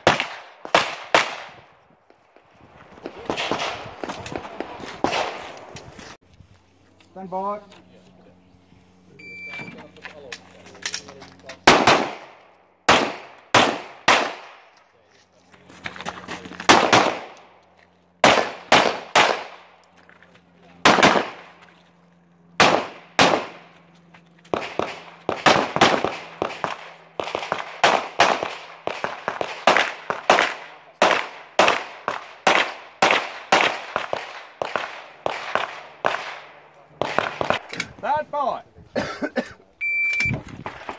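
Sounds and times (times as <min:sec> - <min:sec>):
pistol shots: 0:00.0 - 0:01.6, 0:03.0 - 0:05.6, 0:11.6 - 0:14.7, 0:16.6 - 0:17.5, 0:18.2 - 0:19.8, 0:20.8 - 0:21.6, 0:22.5 - 0:23.7, 0:24.5 - 0:37.7.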